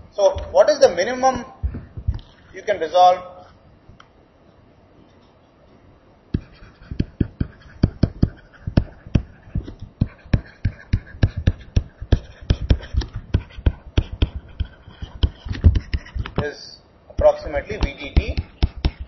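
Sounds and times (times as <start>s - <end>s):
stylus tapping on tablet screen: 6.3s - 16.4s, 17.2s - 19.0s.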